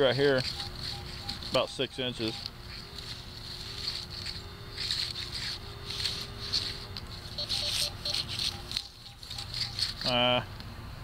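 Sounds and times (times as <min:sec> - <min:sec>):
detector coil swishing through grass: 0:00.0 - 0:10.3
two-pitch detector beeps: 0:00.2 - 0:10.0.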